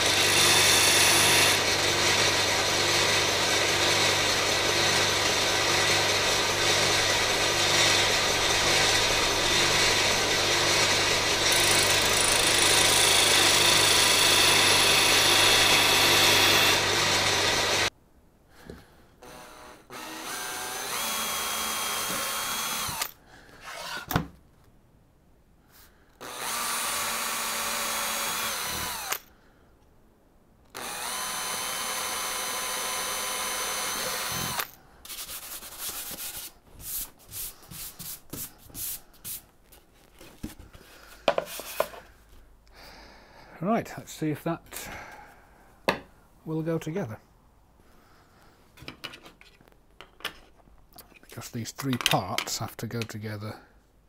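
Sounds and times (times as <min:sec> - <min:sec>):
cordless drill driving screws: 0:00.0 - 0:17.9, 0:19.2 - 0:24.2, 0:26.2 - 0:29.3, 0:30.7 - 0:34.8
sander grinding steel screws: 0:00.0 - 0:17.9, 0:19.2 - 0:24.1, 0:26.2 - 0:29.3, 0:30.7 - 0:36.4.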